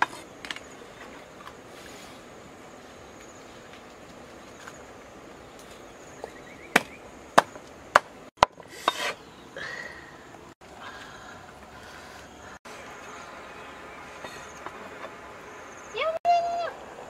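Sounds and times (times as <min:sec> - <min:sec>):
cleaver chopping on a block: 0:06.7 - 0:09.1.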